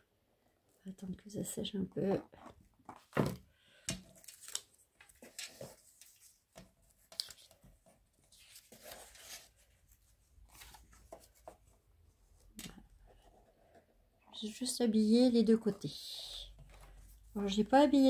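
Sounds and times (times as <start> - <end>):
small taps and crinkles: 2.3 - 8.0
paper rustling: 4.1 - 11.9.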